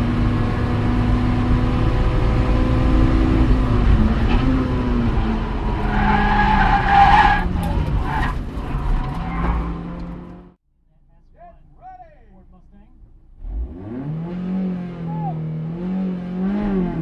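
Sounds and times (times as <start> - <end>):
tires squealing: 4.1 - 10.3.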